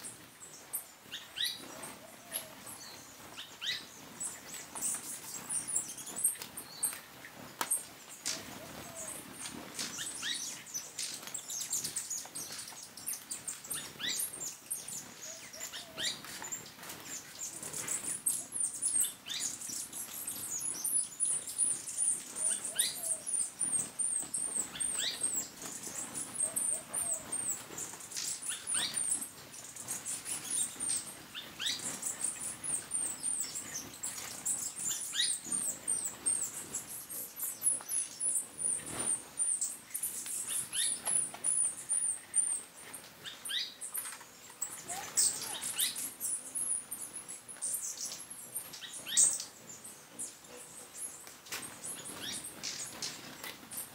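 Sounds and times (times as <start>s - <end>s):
hummingbirds twittering: 0.0s - 53.9s.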